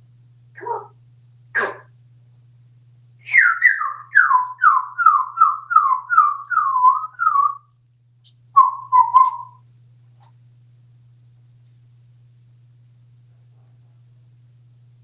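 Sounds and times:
parrot whistling: 3.2 - 7.7, 8.6 - 9.6.

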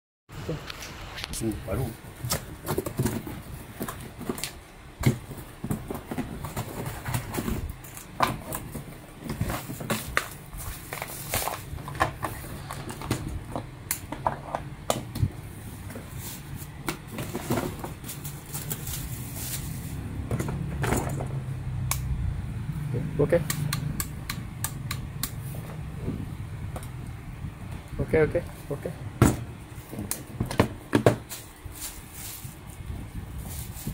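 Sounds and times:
steady low hum: 0.3 - 33.9
plastic wrapping rustling: 0.8 - 13.5, 15.5 - 20.1, 31.2 - 33.9.

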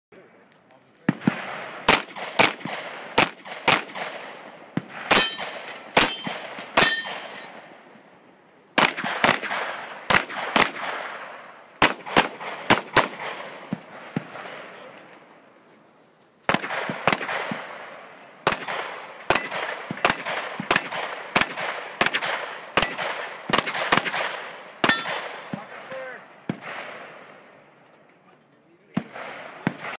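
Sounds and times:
gunshots with echo: 1.1 - 7.6, 8.8 - 14.9, 16.5 - 27.4, 28.9 - 30.0
pistol shots: 1.1 - 7.7, 8.8 - 14.7, 16.5 - 27.4, 28.9 - 30.0
metallic ring: 5.1 - 7.6.

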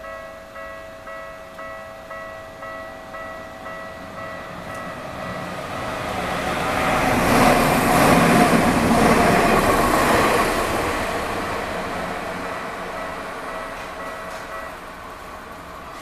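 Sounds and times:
level crossing warning bell: 0.0 - 7.5, 11.8 - 16.0
electric train passing: 0.0 - 16.0.

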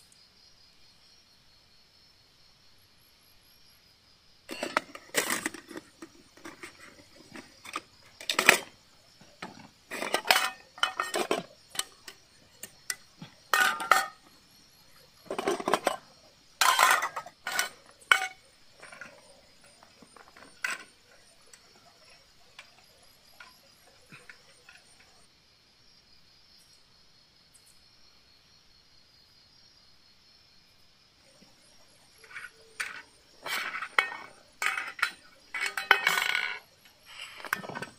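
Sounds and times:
crickets trilling: 0.0 - 37.9
metal cookware clattering on concrete: 4.5 - 14.3, 15.2 - 20.9, 32.2 - 37.9.

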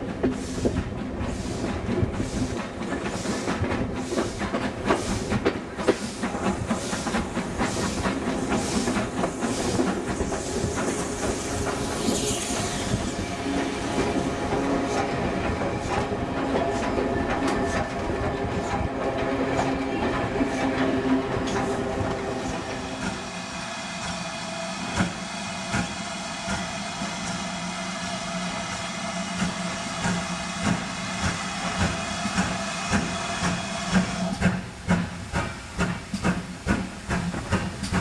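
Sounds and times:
train wheels clicking over rail joints: 0.0 - 23.2, 28.7 - 38.0
steady train rumble: 0.0 - 38.0
steam locomotive chuffing: 0.0 - 38.0
steam hissing: 0.1 - 38.0.

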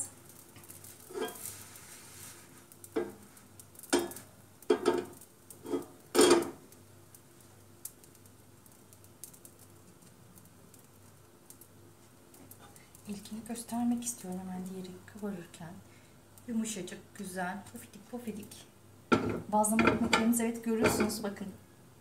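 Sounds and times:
frying pan clattering on stove grate: 1.1 - 1.5, 2.9 - 3.2, 3.8 - 6.6, 19.1 - 21.2.

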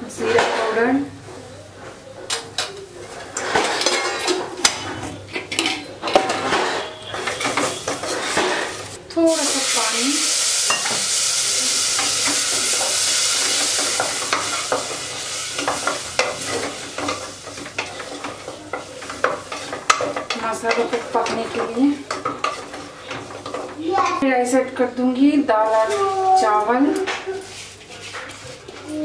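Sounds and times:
spatula stirring in pan: 5.6 - 9.7, 10.3 - 23.9
food sizzling in oil: 6.3 - 24.2
pressure cooker hiss: 8.6 - 17.6.

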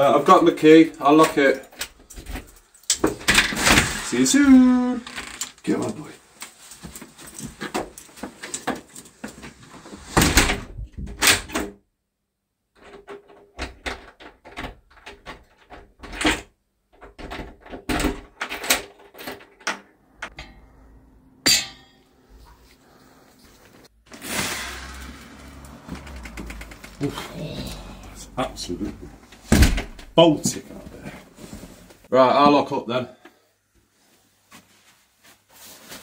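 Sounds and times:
door lock clicks and rattles: 12.8 - 20.4.

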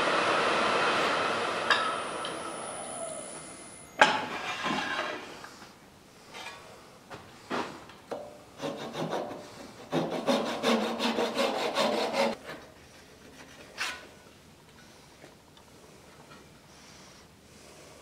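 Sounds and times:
hand saw cutting wood: 8.6 - 12.4.

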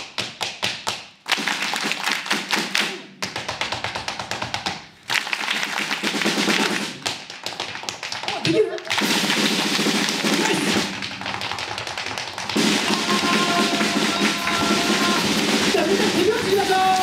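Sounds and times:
audience clapping rhythm: 0.0 - 17.0
tap shoes on wooden board: 3.2 - 4.9, 7.0 - 8.7.

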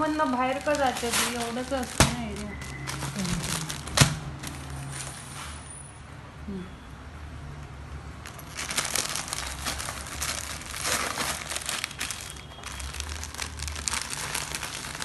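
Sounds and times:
plastic packet crinkling: 0.0 - 5.2, 8.2 - 15.0.

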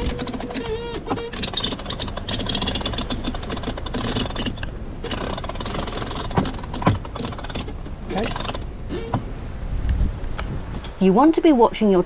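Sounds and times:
winch ratcheting clicks: 0.0 - 9.3.

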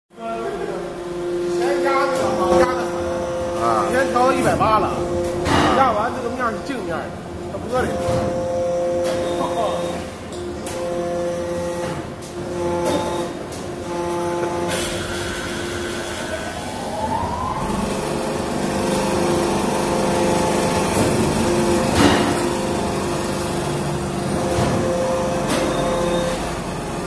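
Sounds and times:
hydraulic press machine hum: 0.2 - 27.0
tone rising in pitch: 16.2 - 18.6.

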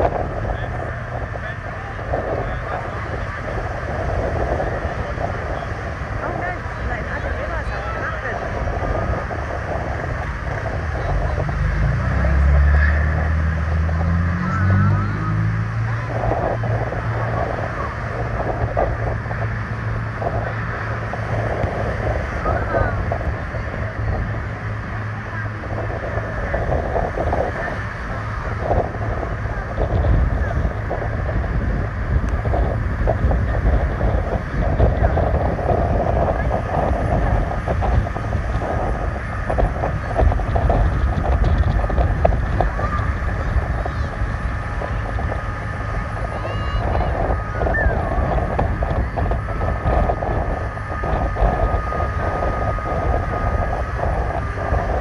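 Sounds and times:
breaking waves: 0.0 - 55.0
diesel engines droning: 0.0 - 55.0
wind buffeting microphone: 0.0 - 55.0.

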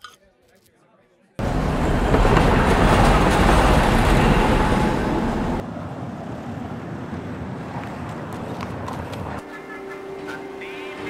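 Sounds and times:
street ambience: 0.0 - 11.0.

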